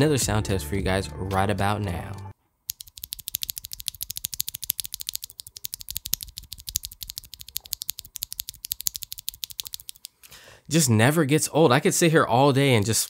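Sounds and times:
fast mechanical keyboard typing: 2.7s - 10.2s.

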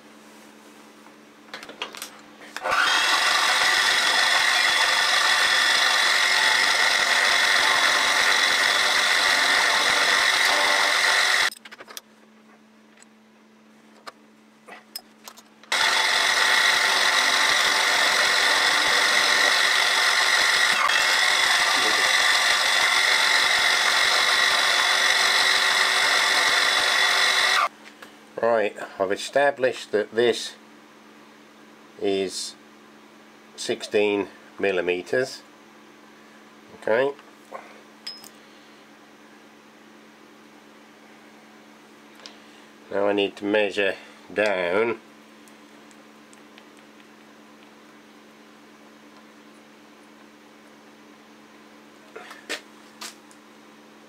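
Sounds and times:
spindle motor hum: 2.4s - 11.5s, 15.6s - 28.2s
milling machine whine: 2.6s - 11.6s, 15.7s - 27.7s.

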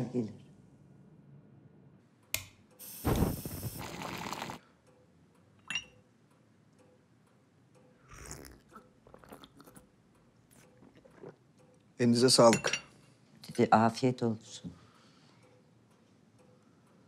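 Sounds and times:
person sipping from cup: 3.4s - 4.6s, 8.1s - 9.9s, 10.5s - 11.5s
porcelain cup clinking: 5.7s - 6.0s, 12.5s - 13.0s.

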